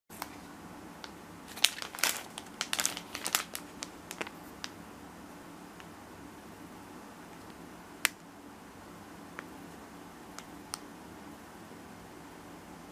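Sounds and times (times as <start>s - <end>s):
plastic packaging crinkling: 1.5s - 4.7s.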